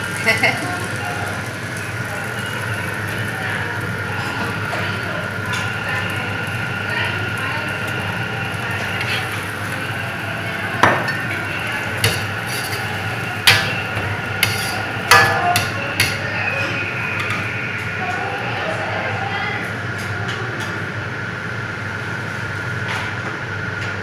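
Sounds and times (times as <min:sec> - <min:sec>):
stir-frying hiss in wok: 0:00.0 - 0:17.6
metal ladle scraping wok: 0:09.0 - 0:09.5, 0:12.0 - 0:16.2
ladle knocking on wok: 0:12.0 - 0:16.2.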